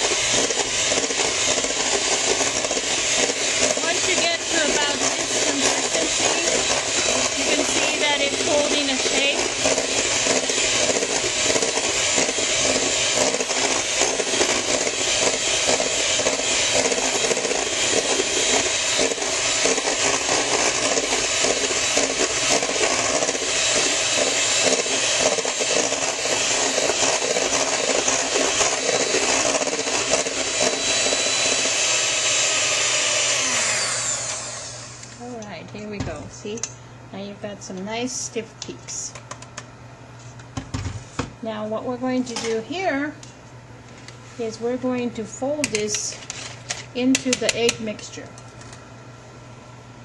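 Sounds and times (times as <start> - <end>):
electric hand mixer whipping: 0.0 - 36.2.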